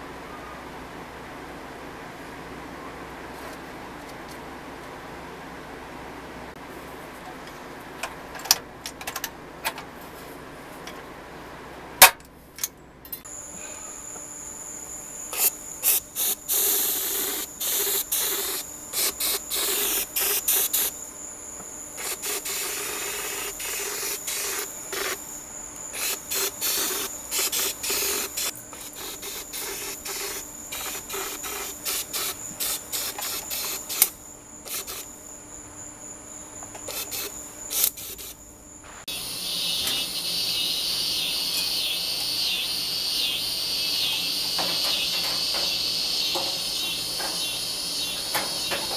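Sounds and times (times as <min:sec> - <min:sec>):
steady high whine: 0:13.1 - 0:31.1, 0:32.4 - 0:48.9
rapid pulsing chirr: 0:13.3 - 0:48.9
spray gun air hiss bursts: 0:15.3 - 0:21.0, 0:22.0 - 0:25.3, 0:25.9 - 0:35.2, 0:36.9 - 0:48.9.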